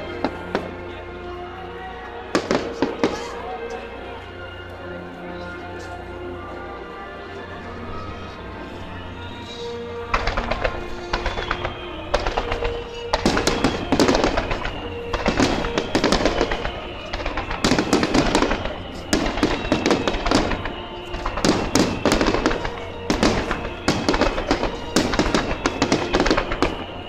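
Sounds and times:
fireworks bangs and crackles: 0:00.0 - 0:01.2, 0:02.2 - 0:03.7, 0:08.3 - 0:27.0
music playing: 0:00.0 - 0:27.0.

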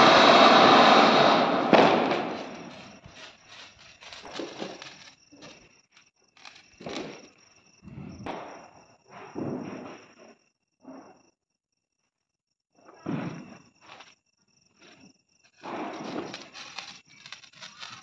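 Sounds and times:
sharp crack: 0:00.0 - 0:05.5
firework hissing: 0:00.0 - 0:05.6, 0:15.6 - 0:18.0.

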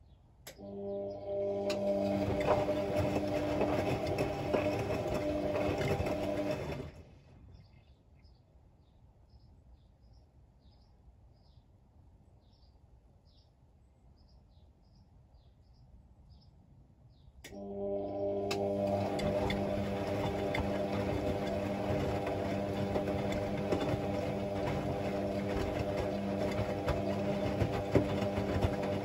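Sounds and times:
washing machine motor humming: 0:00.5 - 0:07.2, 0:17.5 - 0:29.0.

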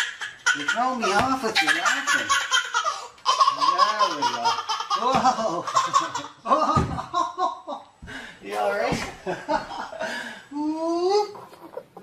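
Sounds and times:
baby laughing: 0:00.0 - 0:06.9.

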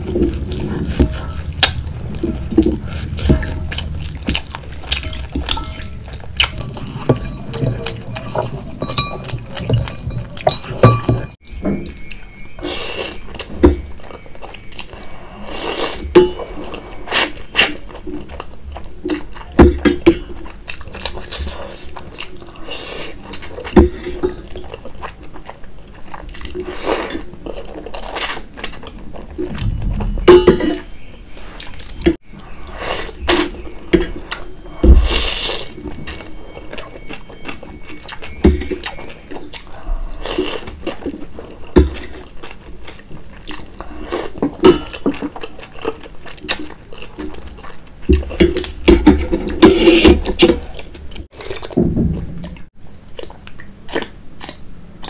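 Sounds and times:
noodles slurped and chewed: 0:32.4 - 0:51.8, 0:52.4 - 0:54.7.

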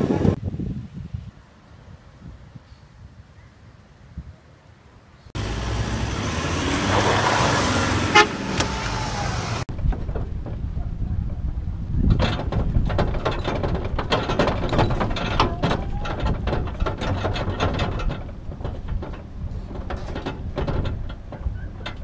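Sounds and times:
low vehicle noise: 0:01.3 - 0:22.0
bike rack rattling and clicking: 0:09.7 - 0:22.0.

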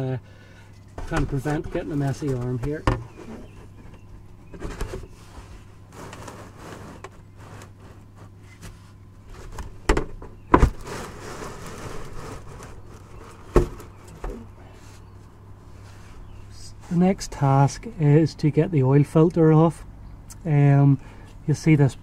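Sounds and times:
plastic pans scraping on ground: 0:00.9 - 0:14.5.

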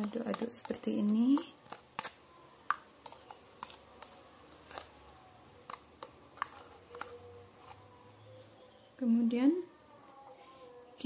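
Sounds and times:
spoon tapping plastic bowl: 0:00.0 - 0:04.9, 0:05.6 - 0:07.8.

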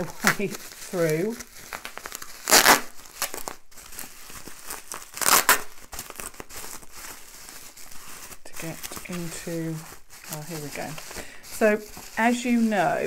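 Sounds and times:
scissors cutting wrapping: 0:00.0 - 0:13.0
wrapping crinkling and rustling: 0:00.0 - 0:13.0.

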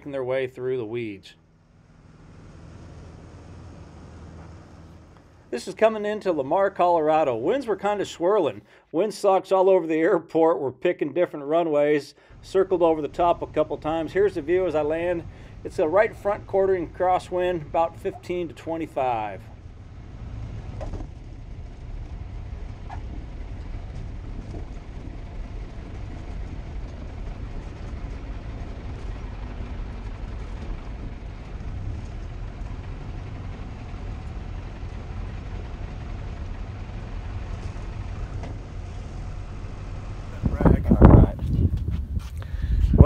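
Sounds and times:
small plane engine in cockpit: 0:00.9 - 0:06.9, 0:12.2 - 0:43.0
wind noise: 0:19.7 - 0:34.6, 0:40.2 - 0:43.0.

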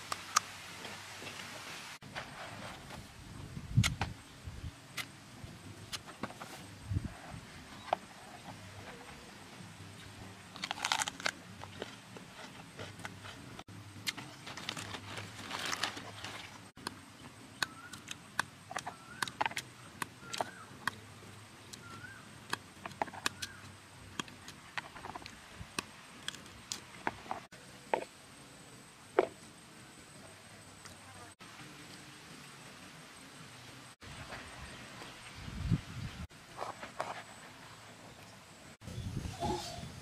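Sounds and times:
knife scraping and cutting fruit: 0:10.6 - 0:16.6.

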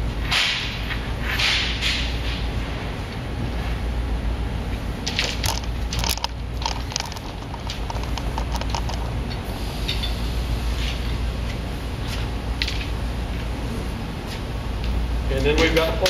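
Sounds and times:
low room hum: 0:00.0 - 0:16.0
clicks and rattles of poles: 0:00.2 - 0:02.5, 0:05.0 - 0:10.2, 0:10.8 - 0:13.0.

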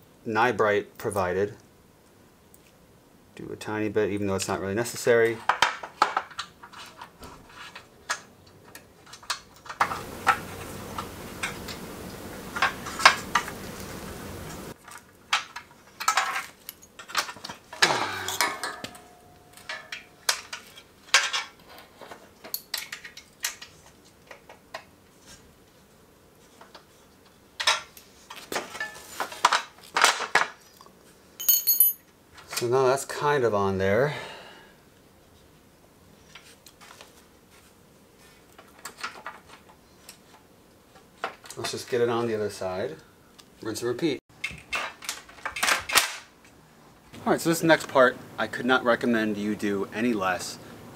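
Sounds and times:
steady hiss: 0:08.8 - 0:29.8, 0:46.1 - 0:50.9
bolts clinking against metal crossbar: 0:16.2 - 0:20.6.

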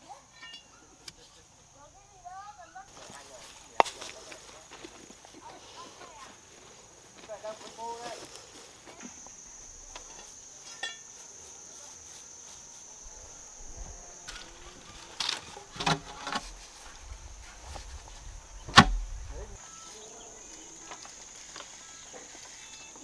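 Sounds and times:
high-pitched insect buzz: 0:05.7 - 0:23.0.

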